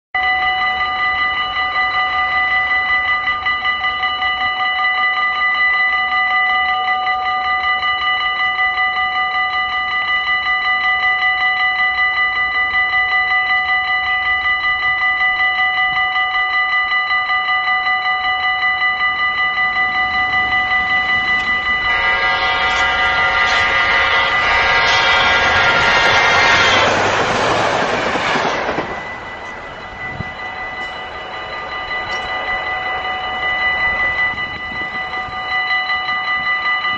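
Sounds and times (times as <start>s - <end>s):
level crossing bell ringing: 0.2s - 36.9s
train horn: 18.6s - 36.9s.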